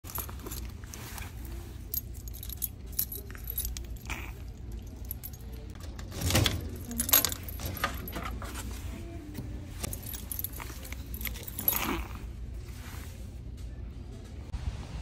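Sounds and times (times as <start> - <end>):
metal keys jangling: 0.0 - 8.7, 9.8 - 12.2
keys metallic clatter: 0.0 - 9.0, 9.7 - 12.3.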